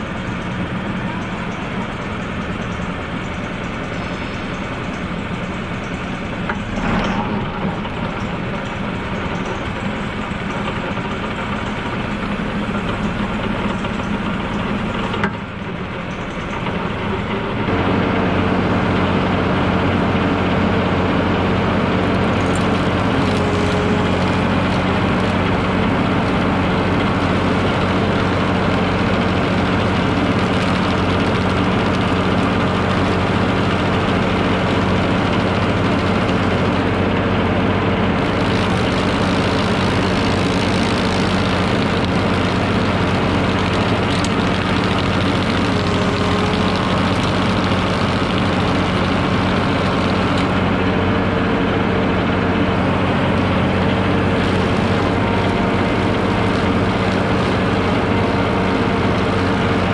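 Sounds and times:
tractor engine running: 0.0s - 59.9s
stump grinder cutting wood: 17.1s - 59.9s.

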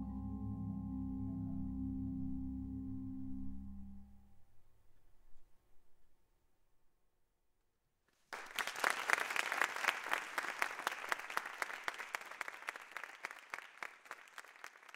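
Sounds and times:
audience applauding: 8.3s - 14.9s.

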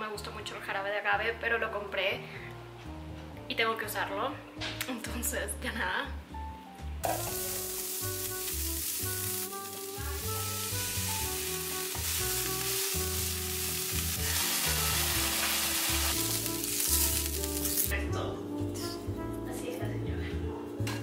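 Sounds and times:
background music: 0.0s - 21.0s
food sizzling in a frying pan: 7.0s - 18.0s.

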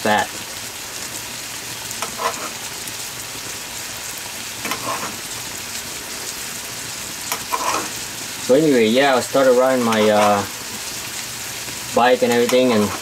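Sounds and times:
meat sizzling in a frying pan: 0.0s - 13.0s
metal spoon scraping a pan: 2.0s - 2.7s, 4.6s - 5.3s, 7.2s - 8.0s, 9.7s - 10.8s, 12.2s - 13.0s.

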